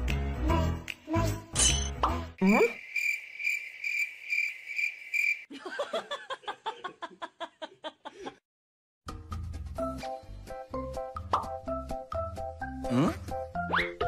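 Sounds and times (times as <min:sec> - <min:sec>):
music: 0:00.0 - 0:02.4, 0:09.0 - 0:14.0
crickets chirping: 0:02.5 - 0:05.5.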